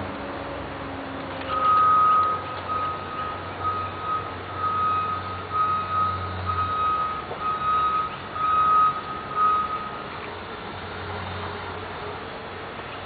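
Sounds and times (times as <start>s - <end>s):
low engine hum: 0.0s - 13.0s
reversing alarm beeping: 1.5s - 10.1s.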